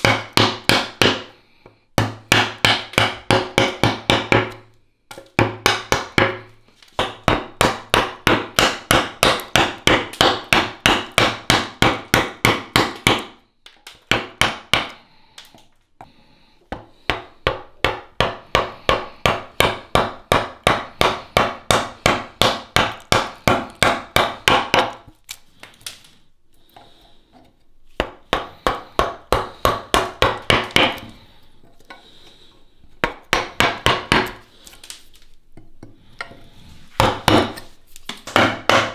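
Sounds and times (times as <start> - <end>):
mallet tapping chisel into wood: 2.0 - 6.4, 38.3 - 38.9.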